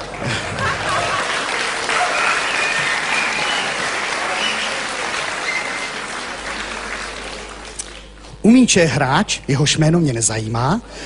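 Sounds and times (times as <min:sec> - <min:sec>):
audience laughing: 0:00.0 - 0:07.6
audience applauding: 0:00.0 - 0:08.2.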